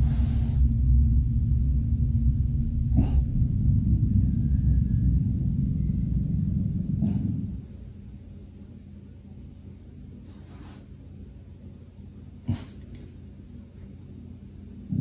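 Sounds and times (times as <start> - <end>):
dog breathing: 0.0 - 0.7, 2.9 - 3.5, 6.9 - 7.8, 10.2 - 11.0
dog growling low: 2.7 - 7.9, 12.4 - 13.2.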